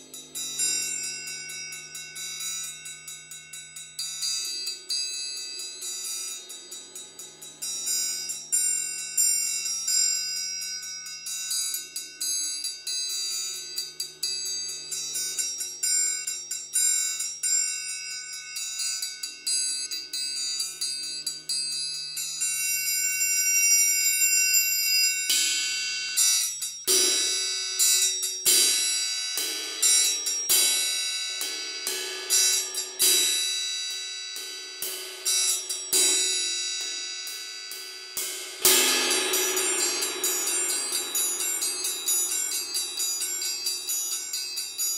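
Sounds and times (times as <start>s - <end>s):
suspended cymbal strokes: 0.0s - 44.9s
triangles ringing: 0.0s - 44.9s.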